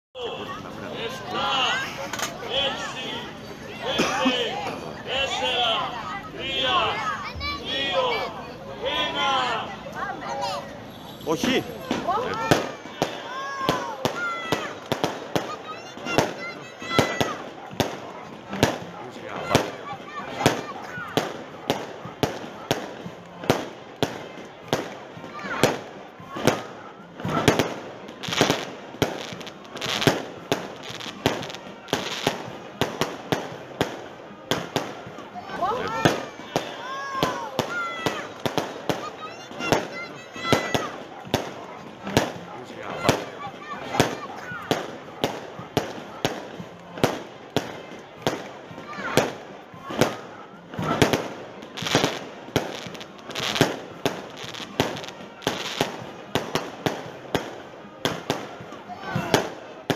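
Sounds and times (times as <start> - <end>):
firework crackle and hiss: 11.7 - 35.0, 35.6 - 58.5.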